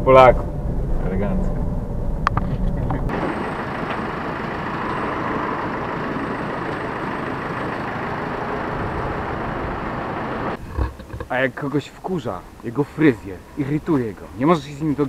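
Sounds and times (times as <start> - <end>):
passing traffic: 0.0 - 11.3
truck engine running: 2.8 - 10.6.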